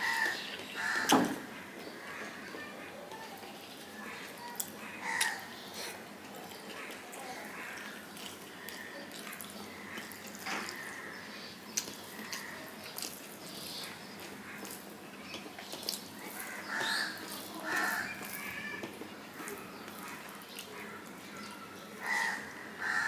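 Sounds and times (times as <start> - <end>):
wet chewing: 3.4 - 21.6
fingers mixing food on steel plate: 6.3 - 21.6.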